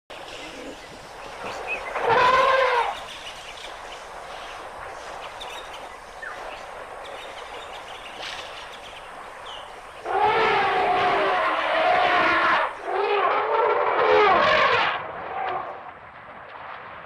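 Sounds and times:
elephant trumpeting: 0:02.0 - 0:03.0, 0:10.0 - 0:15.7.

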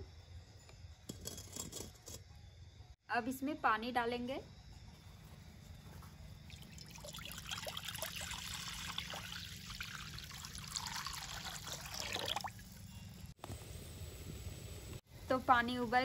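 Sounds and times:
water pouring into metal wok: 0:06.5 - 0:12.8.

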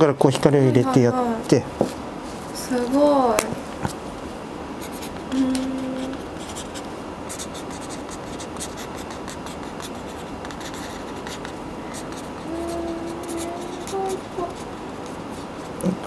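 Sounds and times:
brush pen strokes on card: 0:06.4 - 0:15.8.

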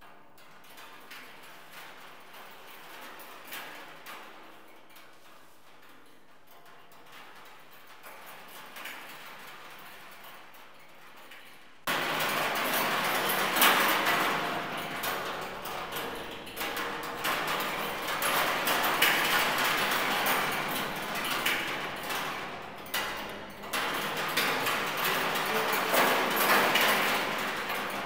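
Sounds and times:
metallic clatter inside oil drum: 0:00.4 - 0:28.0.

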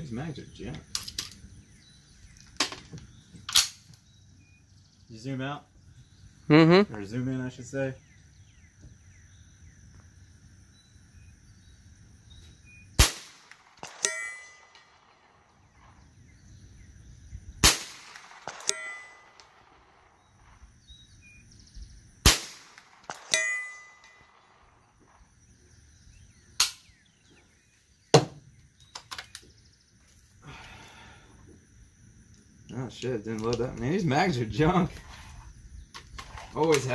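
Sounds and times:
rifle shots: 0:13.0 - 0:16.0, 0:17.6 - 0:20.6, 0:22.2 - 0:25.2.

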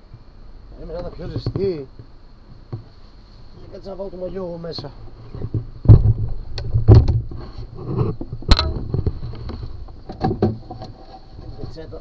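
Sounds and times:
low steady hum: 0:00.0 - 0:12.0
sharp knocks and clanks: 0:05.3 - 0:07.4, 0:08.1 - 0:11.0.

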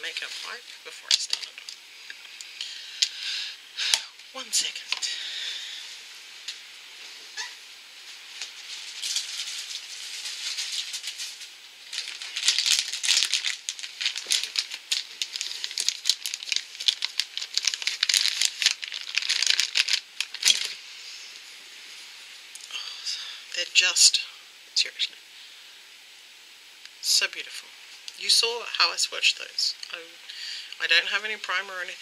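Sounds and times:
plastic pack crinkling: 0:00.0 - 0:01.8, 0:08.2 - 0:20.8.

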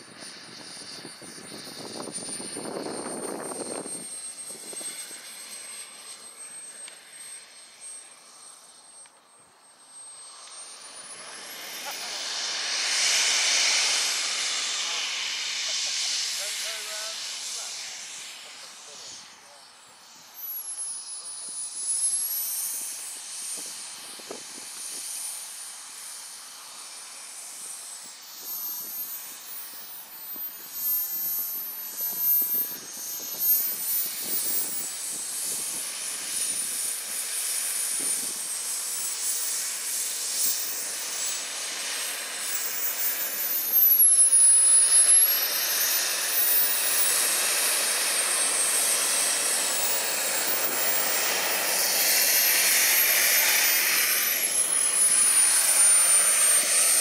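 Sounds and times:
jet turbine whine: 0:00.0 - 0:57.0
rushing hiss: 0:10.2 - 0:19.8, 0:23.2 - 0:57.0.

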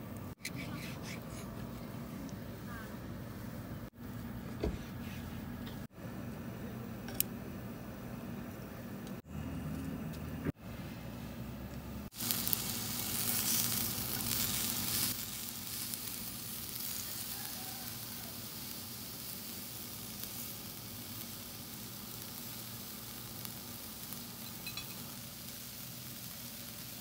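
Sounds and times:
vegetables sizzling on grill pan: 0:12.1 - 0:27.0.

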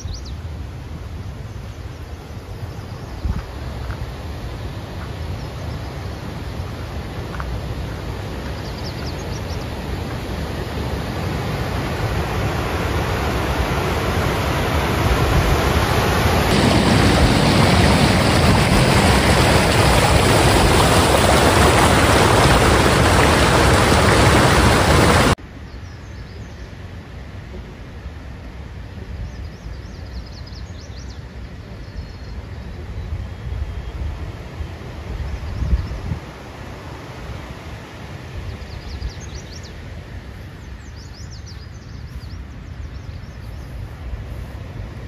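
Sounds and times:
waterfall rushing: 0:11.1 - 0:25.4.

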